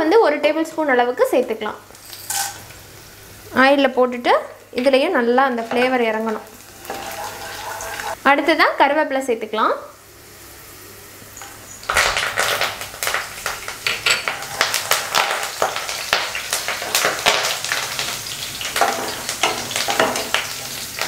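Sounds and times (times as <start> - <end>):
leaves crackling in hot oil: 1.2 - 3.9, 4.8 - 8.3, 10.0 - 21.0
wooden spatula stirring: 5.6 - 8.2.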